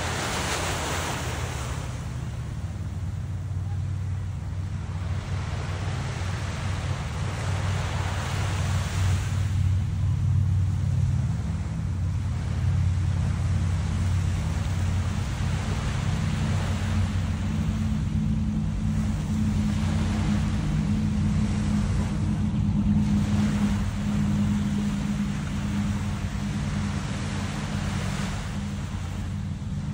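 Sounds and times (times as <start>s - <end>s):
small waves washing on sand: 0.0s - 2.9s, 3.7s - 18.0s
low engine drone: 0.0s - 29.9s.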